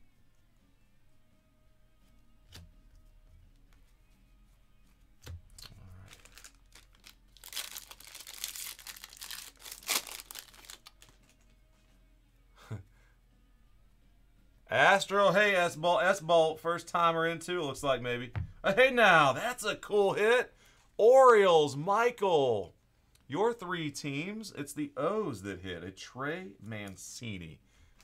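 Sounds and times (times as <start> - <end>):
foil wrapper tearing and crinkling: 5.5 - 11.5.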